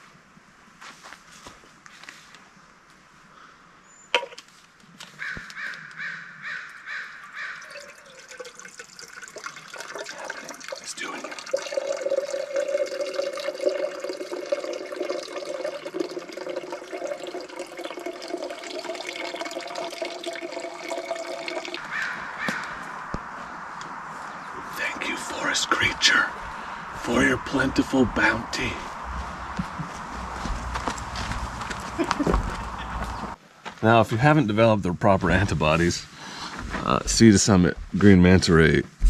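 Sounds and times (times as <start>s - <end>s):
crow cawing: 5.2s - 8.2s, 21.8s - 23.2s
water pouring into container: 7.6s - 21.8s.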